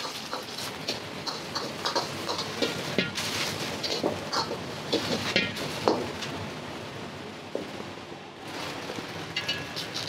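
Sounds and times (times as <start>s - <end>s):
food sizzling in a wok: 0.0s - 6.8s, 8.4s - 10.0s
metal utensil clinking on pan: 9.4s - 10.0s.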